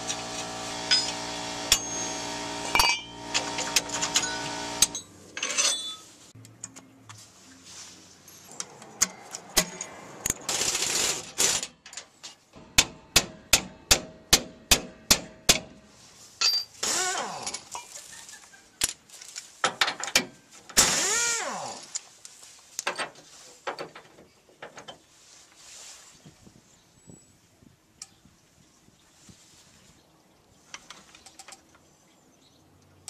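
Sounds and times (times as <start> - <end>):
noisy bursts: 0.0 - 5.0.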